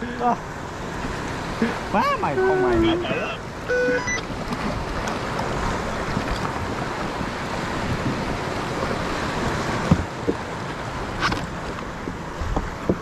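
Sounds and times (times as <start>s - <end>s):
waves and water: 0.0s - 13.0s
wind buffeting microphone: 0.9s - 13.0s.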